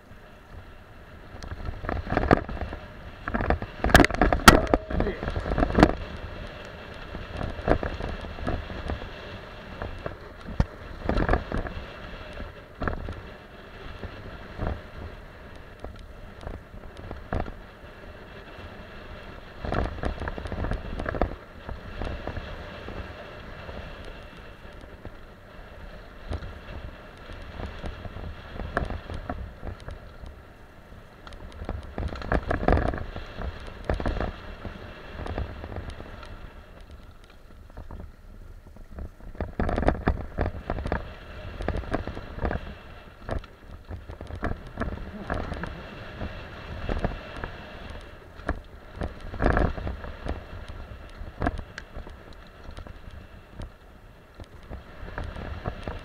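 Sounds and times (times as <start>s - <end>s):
wind rumble on microphone: 0.0s - 56.0s
tyres rolling over dirt and stones: 1.4s - 13.4s, 27.4s - 56.0s
bike rattling and knocking: 1.5s - 9.1s, 9.7s - 11.8s, 31.3s - 56.0s.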